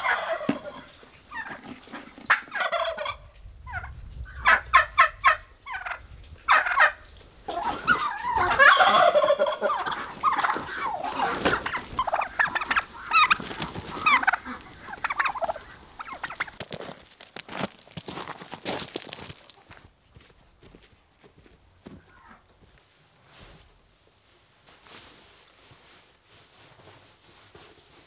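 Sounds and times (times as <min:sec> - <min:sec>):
turkeys gobbling: 0:00.0 - 0:17.3, 0:22.0 - 0:22.5
wings flapping: 0:07.5 - 0:17.2.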